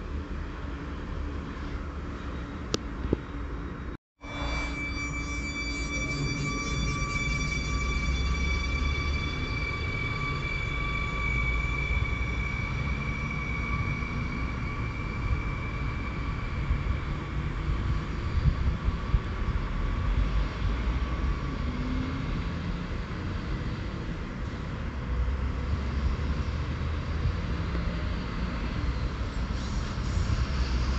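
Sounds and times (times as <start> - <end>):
low train rumble: 0.0 - 30.9
two-note electric whine: 4.2 - 12.8.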